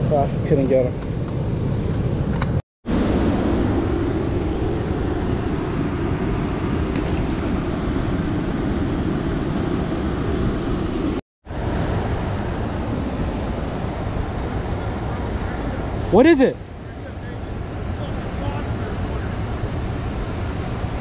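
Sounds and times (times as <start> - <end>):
wind on microphone: 0.0 - 21.0
river water churning against rocks: 2.9 - 16.5.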